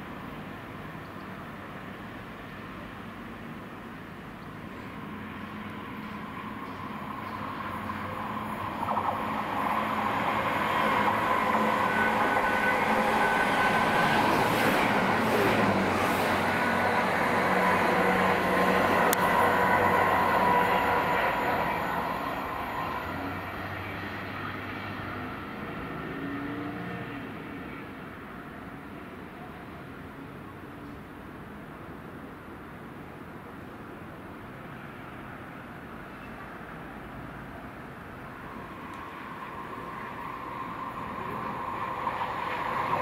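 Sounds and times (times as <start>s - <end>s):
diesel engines: 0.0s - 43.0s
train wheels on rails: 3.3s - 26.2s, 37.4s - 43.0s.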